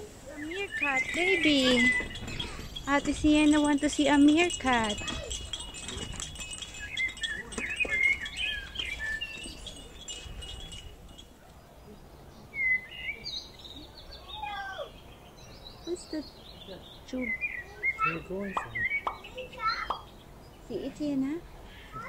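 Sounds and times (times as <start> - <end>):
steady high ringing: 0.0 - 11.6
birds chirping: 0.0 - 22.0.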